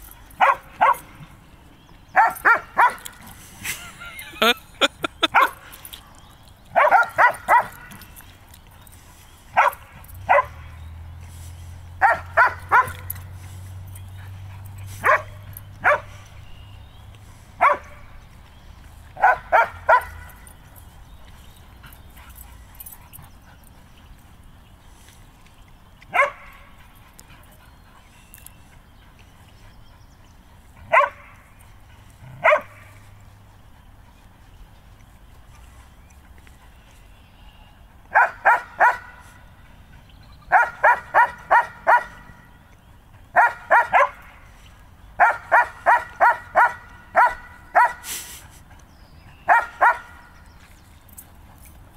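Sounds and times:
dog barking: 0.4 - 1.1, 2.2 - 3.1, 5.2 - 5.6, 6.8 - 7.9, 9.6 - 10.7, 12.0 - 13.1, 15.0 - 16.1, 17.6 - 18.0, 19.2 - 20.3, 26.1 - 26.5, 30.9 - 31.3, 32.4 - 32.9, 38.1 - 39.2, 40.5 - 42.3, 43.4 - 44.2, 45.2 - 48.0, 49.5 - 50.2.

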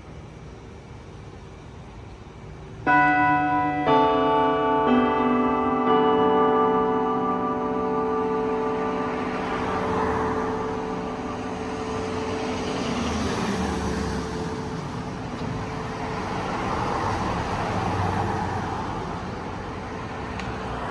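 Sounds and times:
road traffic passing: 0.0 - 20.9
church bell hum: 2.8 - 20.3.

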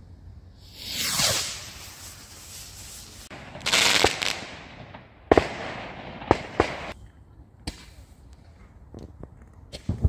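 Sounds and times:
firework rushing hiss with cracks: 0.6 - 7.0
firework sharp bangs: 0.7 - 7.0.

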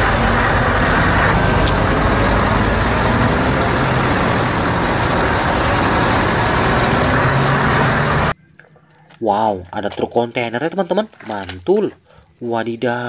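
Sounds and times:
diesel truck engine running: 0.0 - 8.4
outdoor traffic noise: 0.0 - 10.3.

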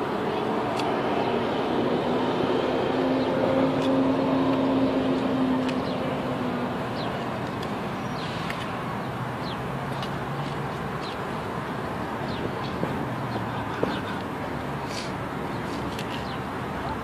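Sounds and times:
engine drone: 0.0 - 9.6.

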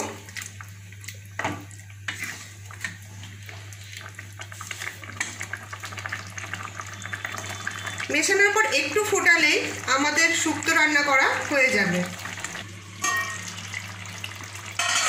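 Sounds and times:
spatula scraping in pan: 2.1 - 3.0, 14.8 - 15.0.

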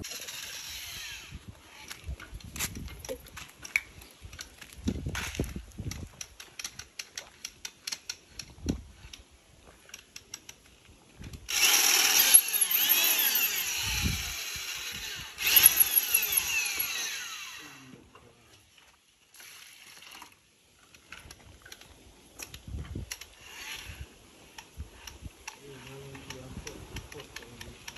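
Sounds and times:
power drill mixing mortar: 0.0 - 2.1, 11.5 - 18.0.

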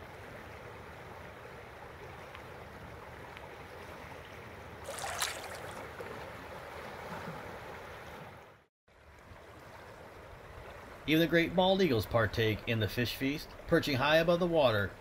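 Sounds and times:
river flowing: 0.0 - 15.0.

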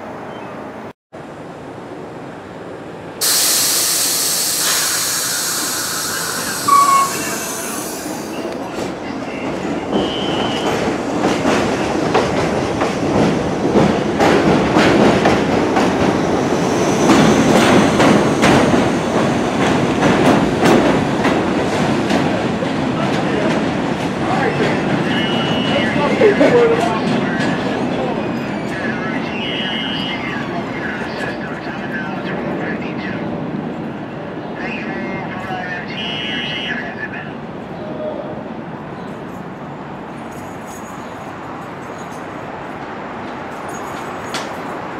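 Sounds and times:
brief tone: 0.3 - 0.6, 6.1 - 7.8
loud hiss of air: 3.2 - 8.5.

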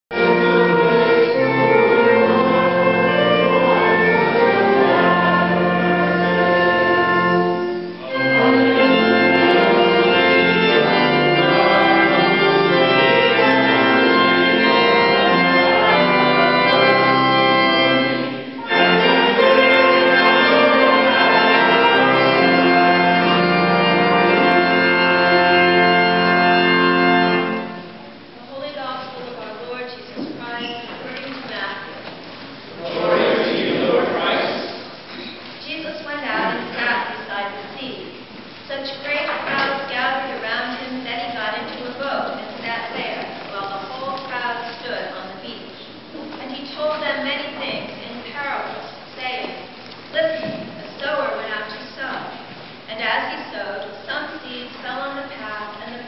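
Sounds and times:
church organ chords: 0.1 - 28.4.

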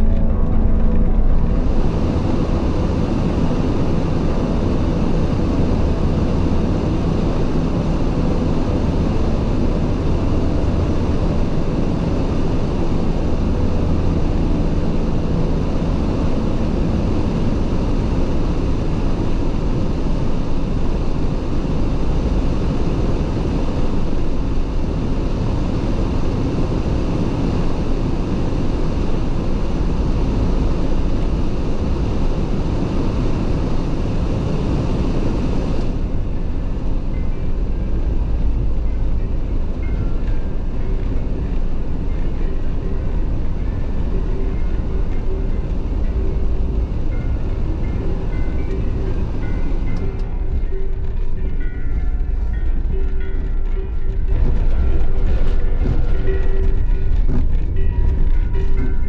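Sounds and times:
heater fan blowing: 0.0 - 59.0
van driving rumble: 0.0 - 59.0.

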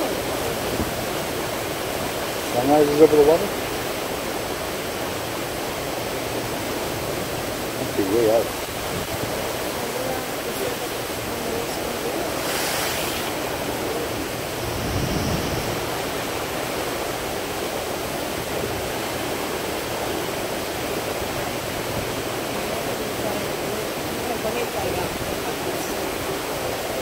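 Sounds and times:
sea water rushing: 0.0 - 27.0
wind: 0.0 - 27.0
brief hiss: 12.3 - 13.7.

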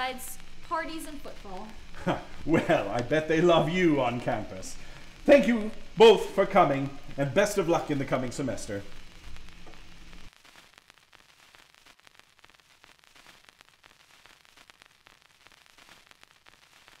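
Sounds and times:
steady hum: 0.0 - 13.3
faint static hiss: 0.0 - 17.0
light crackling clicks: 1.3 - 3.2.

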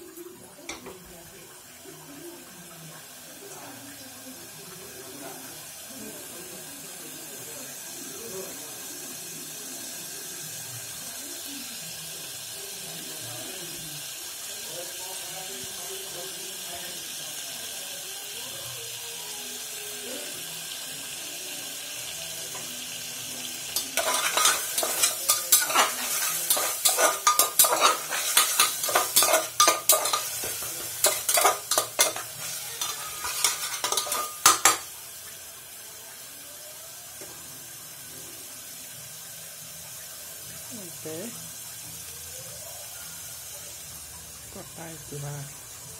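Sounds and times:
spices sizzling in hot oil: 0.0 - 45.9
metal spoon scraping a pot: 23.8 - 34.9.

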